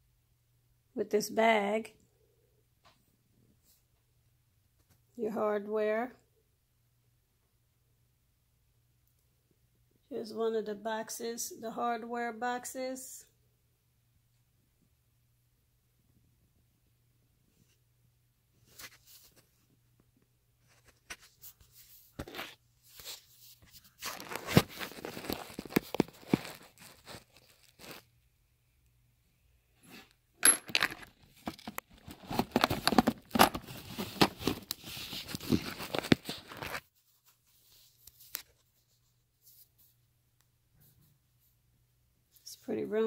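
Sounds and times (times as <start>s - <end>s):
rustling in a fabric tool bag: 20.7s - 28.1s, 30.7s - 39.8s.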